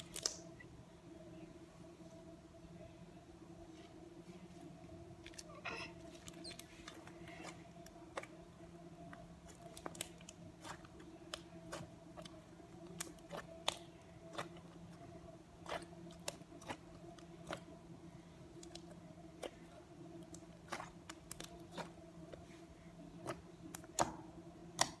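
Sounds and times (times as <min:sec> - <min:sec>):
steady low hum: 0:00.0 - 0:25.0
slime clicking and popping: 0:23.2 - 0:25.0.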